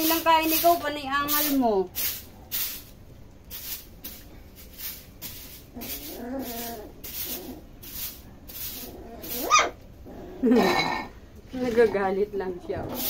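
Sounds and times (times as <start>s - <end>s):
puppy whining cry: 5.8s - 7.7s, 8.9s - 11.1s.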